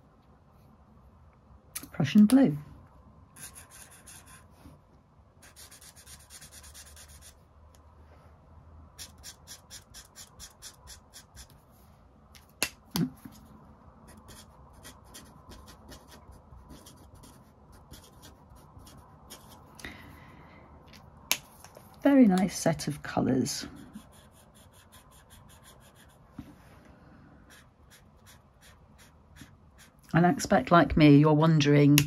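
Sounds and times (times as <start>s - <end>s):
marker scratching on paper: 3.4s - 4.5s, 5.4s - 7.4s, 9.0s - 11.6s, 13.2s - 19.7s, 23.7s - 26.2s, 27.5s - 30.1s.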